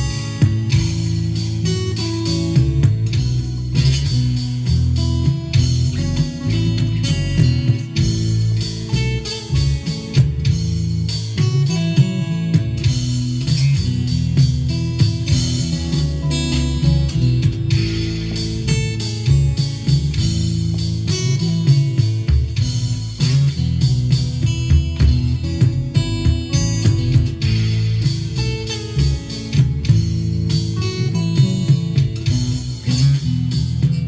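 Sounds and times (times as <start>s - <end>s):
acoustic guitar chords: 0.0s - 34.0s.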